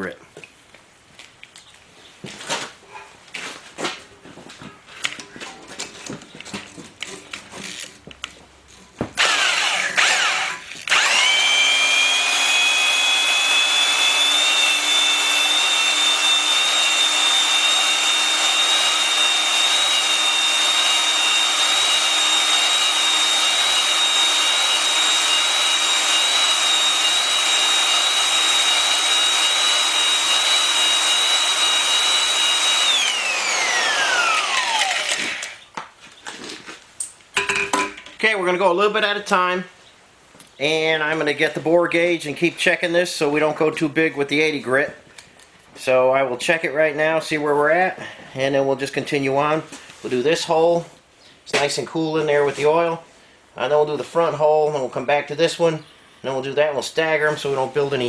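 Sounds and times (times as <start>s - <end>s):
electric drill whining: 9.2s - 35.7s.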